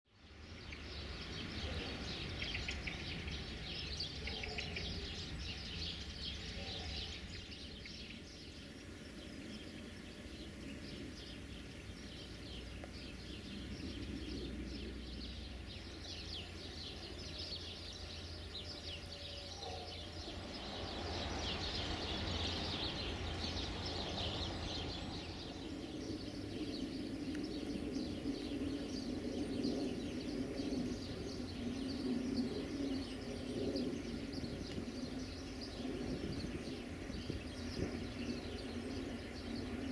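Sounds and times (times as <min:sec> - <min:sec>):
small birds chirping: 0:00.1 - 0:39.9
low rumble: 0:20.0 - 0:36.4.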